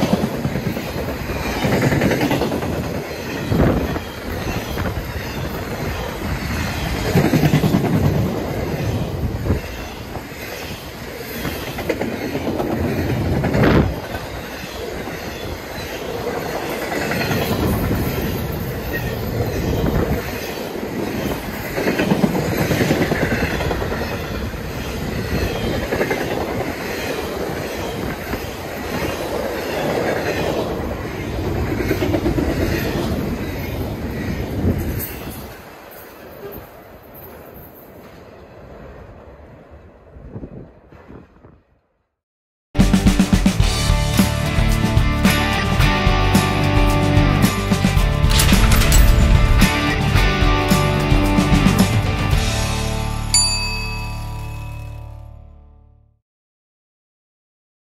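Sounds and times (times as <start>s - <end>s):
train wheels clattering over rails: 0.0s - 36.4s.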